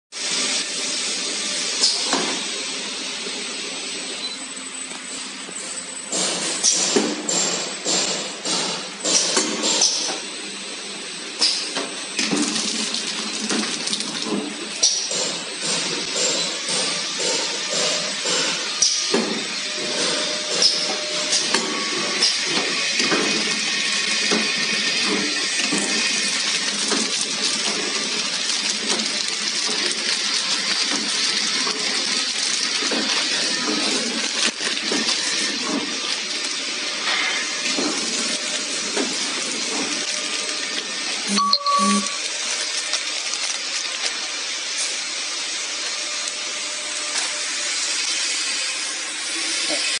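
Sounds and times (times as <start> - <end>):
packing machine hissing: 0.2 - 50.0
brief tone: 4.2 - 4.8, 41.3 - 42.2.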